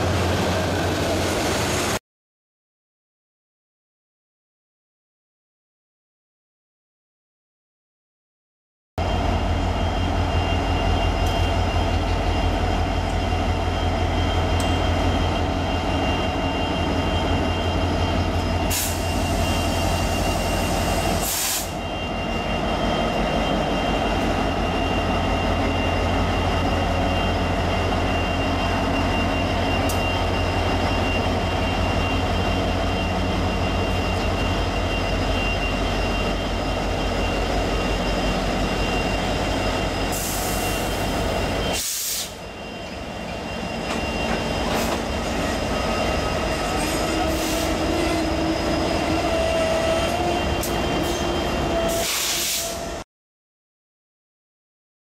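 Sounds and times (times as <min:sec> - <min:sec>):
diesel locomotive engines rumbling: 0:00.0 - 0:02.0, 0:09.0 - 0:53.0
steady high-pitched tone: 0:09.0 - 0:51.9.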